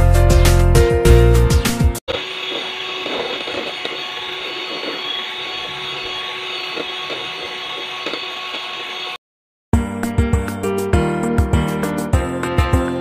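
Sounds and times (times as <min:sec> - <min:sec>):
electric hand mixer running: 0:02.1 - 0:09.2.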